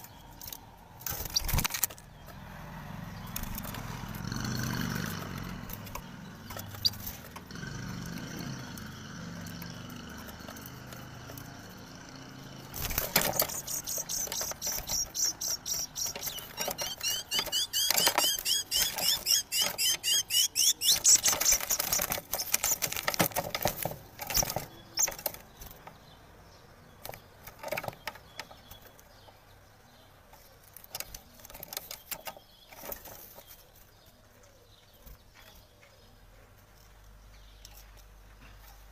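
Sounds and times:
bird wings flapping against cage: 1.0 - 2.0, 3.0 - 20.0, 20.8 - 25.8
shrill repeated bird calls: 12.5 - 23.2.

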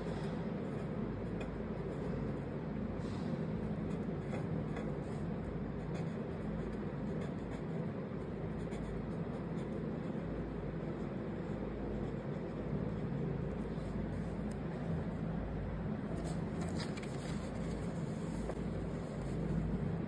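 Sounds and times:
low background rumble: 0.0 - 20.0
marker scratching on card: 3.8 - 13.6.

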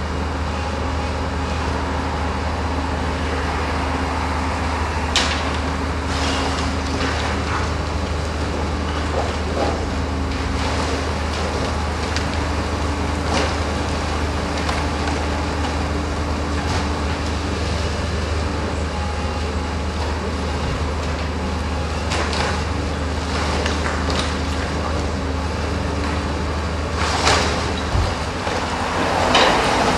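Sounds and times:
excavator diesel engine running: 0.0 - 29.9
cracks and crashes of demolition: 5.1 - 17.8, 20.9 - 25.2, 25.9 - 29.9.

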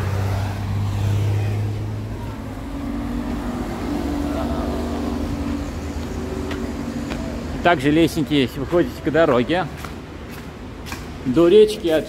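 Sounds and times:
higher engine drone: 0.0 - 8.8
vehicle engine low hum: 0.0 - 11.3.

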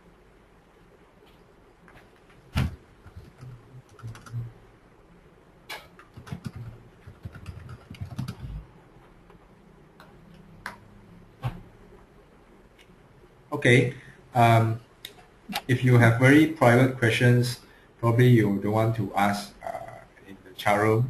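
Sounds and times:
typing on keyboard: 3.1 - 4.5, 5.7 - 8.6.

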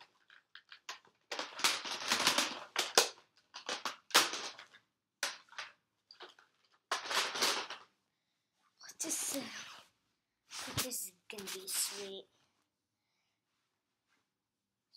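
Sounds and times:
plastic parts clattering: 0.0 - 7.9
plastic toy parts clicking: 0.1 - 7.8.

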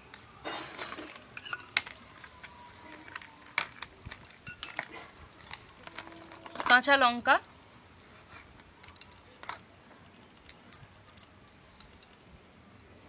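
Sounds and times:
metal spoon clinking on bowl: 0.0 - 2.1, 4.2 - 7.5.

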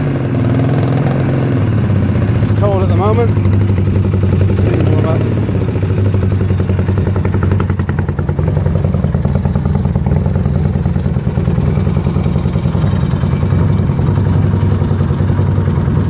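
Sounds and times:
motorcycle engine idling: 1.6 - 16.0.

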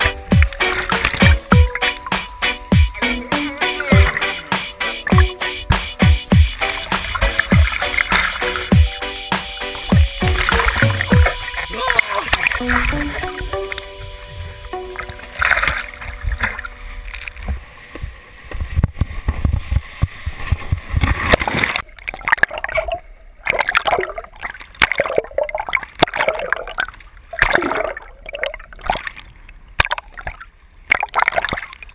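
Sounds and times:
muffled water rushing and splashing: 6.4 - 9.0, 9.8 - 21.9.

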